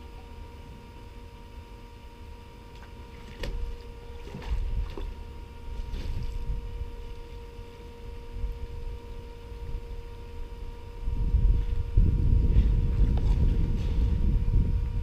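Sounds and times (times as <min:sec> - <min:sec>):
water pump engine humming: 0:00.0 - 0:15.0
low rumble: 0:04.1 - 0:15.0.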